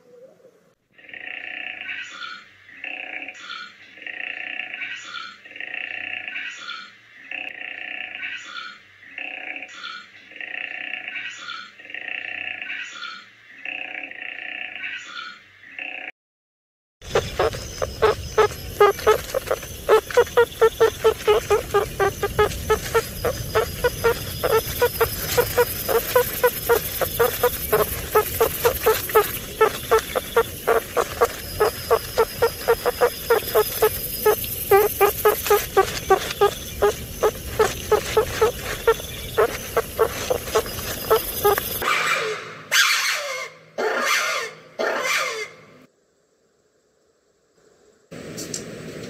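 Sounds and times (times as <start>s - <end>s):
meerkats peeping: 17.0s - 41.8s.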